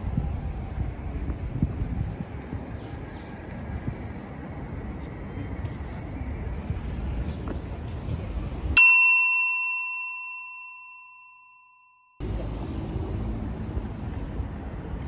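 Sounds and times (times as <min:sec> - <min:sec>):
street background noise: 0:00.0 - 0:11.2, 0:12.2 - 0:15.0
bell chime: 0:08.8 - 0:12.2.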